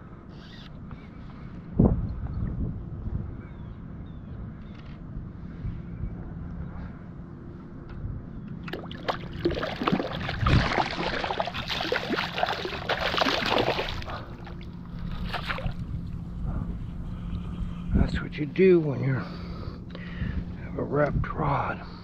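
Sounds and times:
faint low hum: 0.0 - 22.0
fish splashing in water: 8.6 - 15.8.

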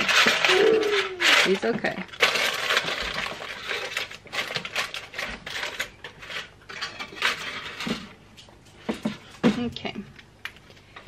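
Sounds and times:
aluminium foil crinkling: 0.0 - 7.9.

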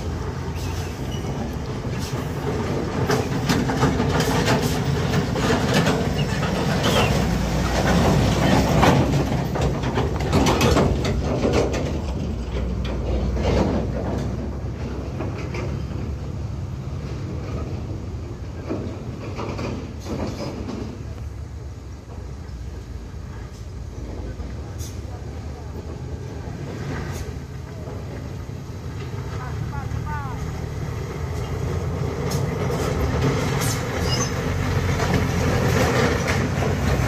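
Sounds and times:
diesel truck engine running: 0.0 - 37.0
empty trailer rattling and clanking: 1.1 - 16.4, 31.2 - 37.0.

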